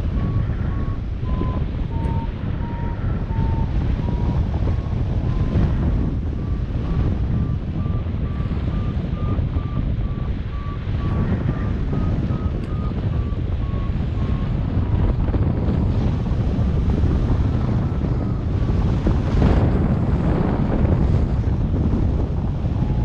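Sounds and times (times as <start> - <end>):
variometer beeping: 0.0 - 14.9, 22.4 - 23.0
wind rushing over microphone: 0.0 - 23.0.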